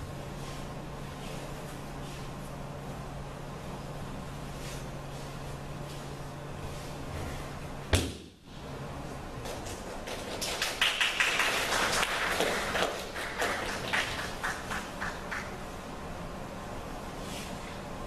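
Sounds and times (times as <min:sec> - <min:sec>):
audience clapping: 0:09.6 - 0:15.6.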